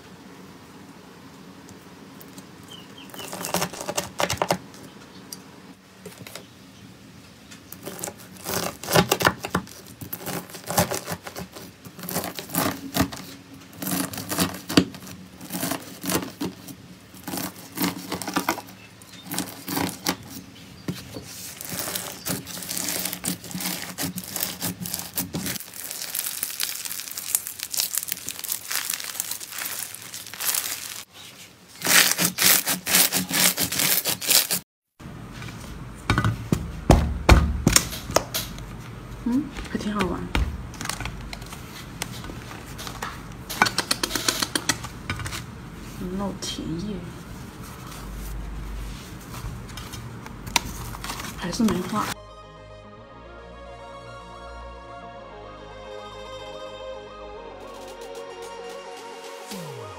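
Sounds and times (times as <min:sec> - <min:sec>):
crunchy slime crackling and popping: 0:07.7 - 0:16.6, 0:17.2 - 0:20.4, 0:21.4 - 0:31.1, 0:31.8 - 0:34.6.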